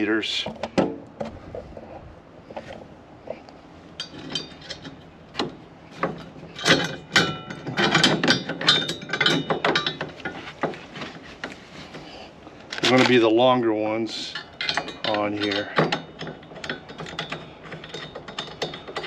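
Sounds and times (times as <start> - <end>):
metal bolts clinking and rattling: 3.9 - 11.6, 12.6 - 19.0.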